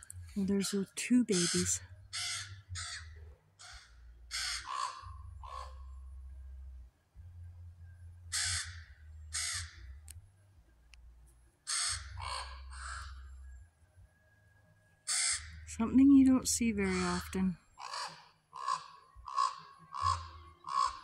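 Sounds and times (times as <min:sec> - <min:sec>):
ravens calling harshly: 0:01.2 - 0:05.8, 0:08.3 - 0:09.9, 0:11.7 - 0:13.2, 0:15.1 - 0:15.7, 0:16.7 - 0:21.0.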